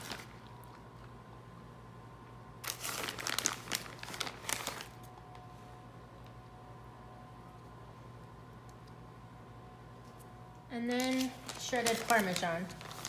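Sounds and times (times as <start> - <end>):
plastic bag crinkling: 0.0 - 0.8, 2.6 - 5.4, 10.8 - 13.0
low steady hum: 0.0 - 13.0.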